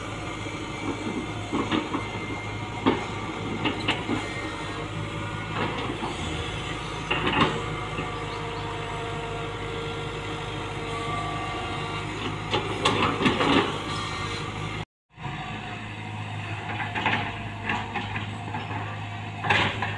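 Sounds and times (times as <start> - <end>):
excavator diesel engine running: 0.0 - 19.9.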